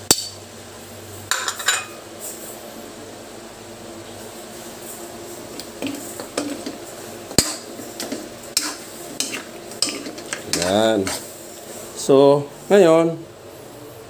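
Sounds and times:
metal spoon scraping wok: 5.5 - 11.3.

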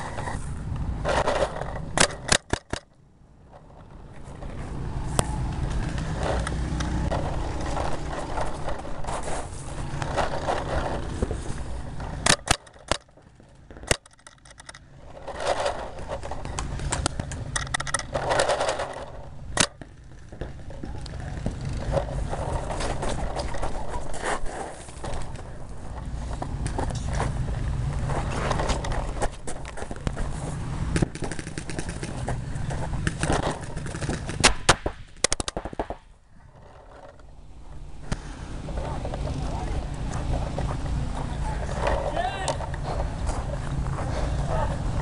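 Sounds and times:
handling and wind noise: 0.0 - 45.0
paintball marker firing: 30.9 - 36.2.

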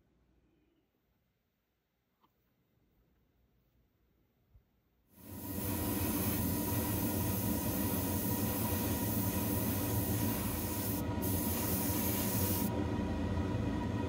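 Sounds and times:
spray paint hissing: 5.2 - 12.7
extraction fan humming: 5.2 - 14.0.

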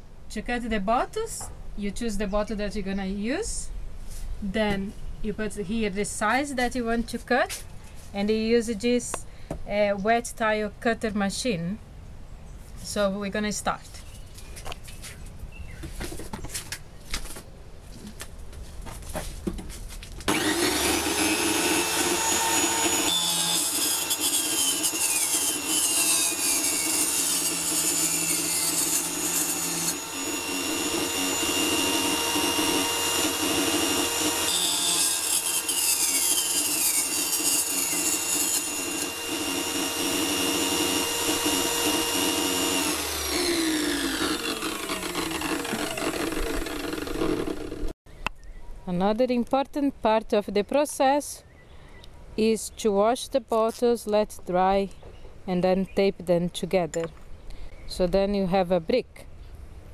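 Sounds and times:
gritty glass cutting noise: 20.3 - 47.9
tile saw motor whine: 20.3 - 47.9.

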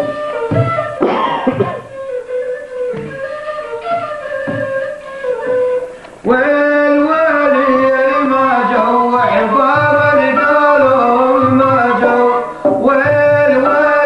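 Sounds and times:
goblet drum strokes: 0.0 - 6.3, 9.7 - 14.0
long-necked string instrument melody: 0.0 - 14.0.

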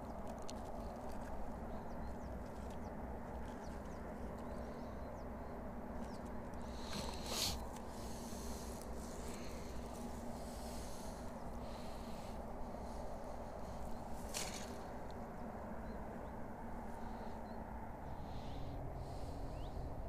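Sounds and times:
steady low hum: 0.0 - 20.0
fishing line rustling: 6.6 - 15.3.

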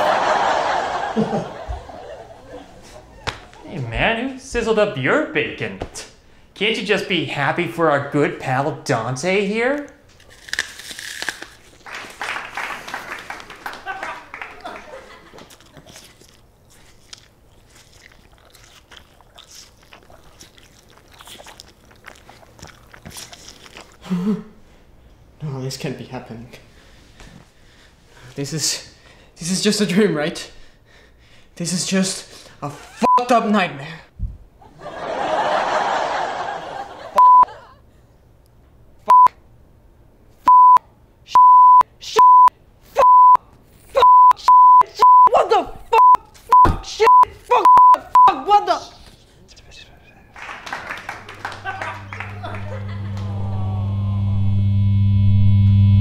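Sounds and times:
open-mouthed chewing: 14.6 - 24.6
high censor bleeps: 37.2 - 37.5, 39.1 - 39.3, 40.5 - 40.8, 41.4 - 43.4, 44.0 - 45.3, 46.0 - 48.3.

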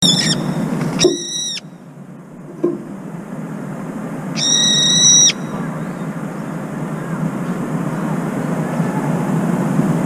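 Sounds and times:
bird shrill cry: 0.0 - 1.7, 4.4 - 6.0
low background rumble: 0.0 - 10.0.

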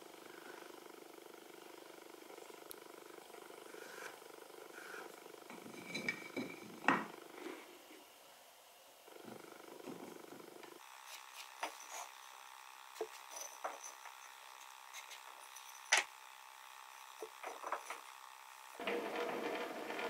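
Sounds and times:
scratchy rubbing of wood: 3.7 - 6.1, 18.8 - 20.0.

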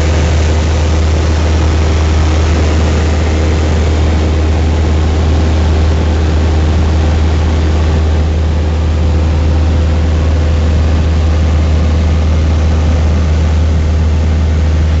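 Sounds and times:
airplane engine drone in cabin: 0.0 - 15.0.

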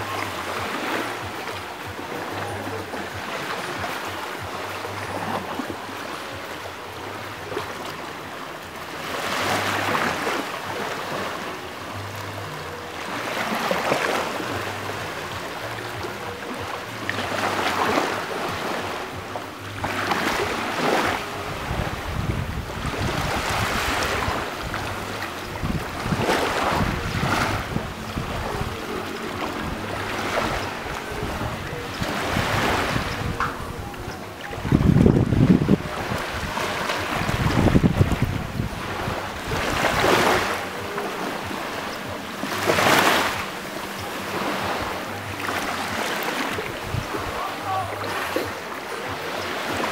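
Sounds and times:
wind rumbling on microphone: 18.2 - 49.2.

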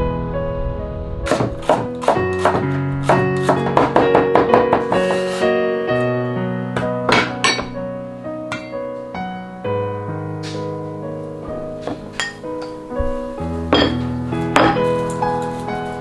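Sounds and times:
piano music: 0.0 - 16.0
cleaver chopping on wooden board: 1.3 - 5.2.

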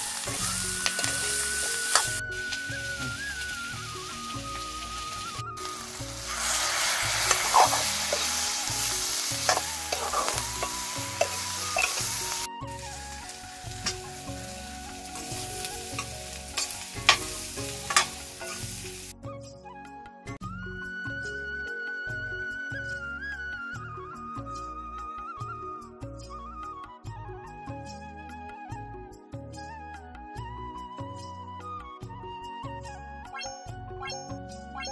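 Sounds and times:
food sizzling in wok: 0.0 - 19.2
music: 0.0 - 34.9
spoon scraping against pan: 0.8 - 2.2, 6.2 - 13.2, 13.8 - 19.0.

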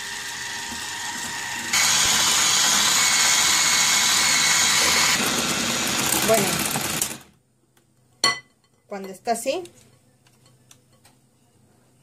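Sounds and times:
electric hand mixer whisking: 0.0 - 7.3.

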